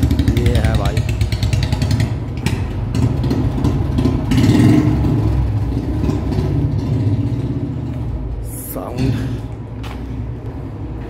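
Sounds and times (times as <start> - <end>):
motorcycle engine pulsing exhaust: 0.0 - 8.3.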